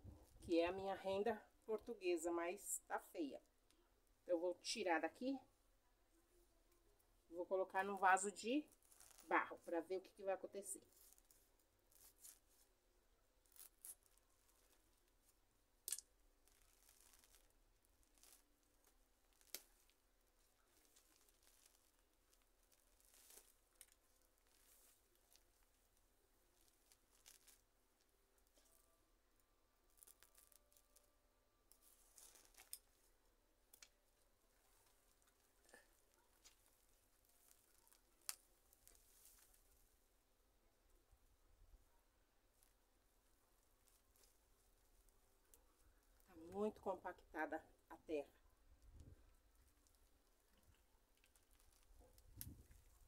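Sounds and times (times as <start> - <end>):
faint scrapes and rustles: 8.2 - 15.4, 16.4 - 29.1, 29.8 - 40.1, 48.8 - 53.0.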